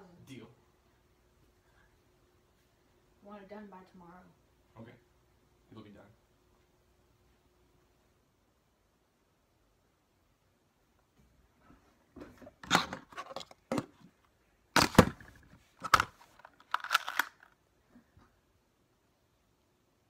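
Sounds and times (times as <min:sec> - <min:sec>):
plastic toy pistols clicking: 0:15.8 - 0:17.5.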